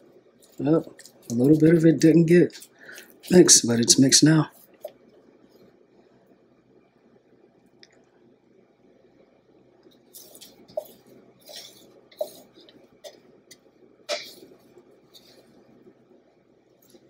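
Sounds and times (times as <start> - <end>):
spatula scraping a bowl: 10.2 - 13.2.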